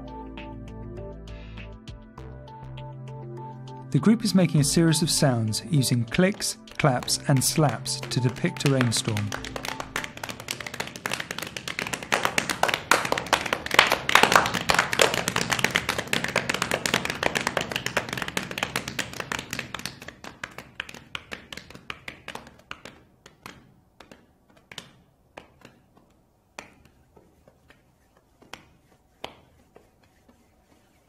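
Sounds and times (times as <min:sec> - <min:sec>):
hands clapping: 0:04.6 - 0:31.0
palm slaps on floor: 0:06.3 - 0:30.5
finger clicks: 0:20.9 - 0:27.8.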